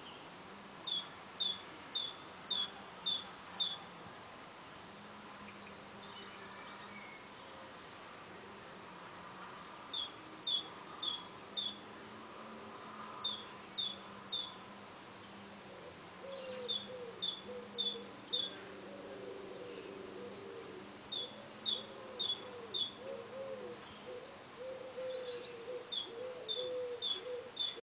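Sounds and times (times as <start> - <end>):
bird's low wavering calls: 0.6 - 3.8, 9.7 - 11.8, 13.0 - 14.6, 15.8 - 27.8
songbird whistling song: 0.6 - 3.8, 9.6 - 11.8, 13.0 - 14.6, 16.2 - 18.6, 19.7 - 27.8.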